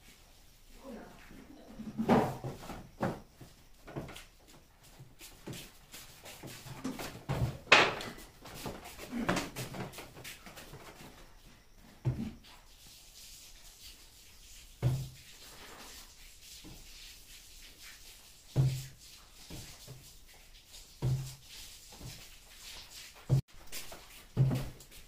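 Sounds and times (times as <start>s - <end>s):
knocks and thumps: 6.5s - 10.2s.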